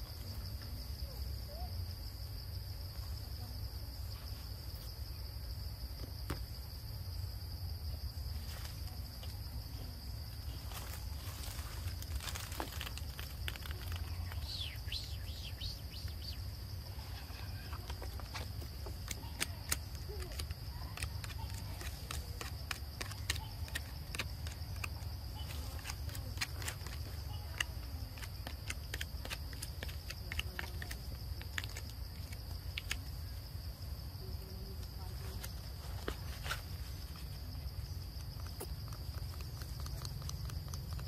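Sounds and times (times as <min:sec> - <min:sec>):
bird chirps: 0:14.0 - 0:17.8.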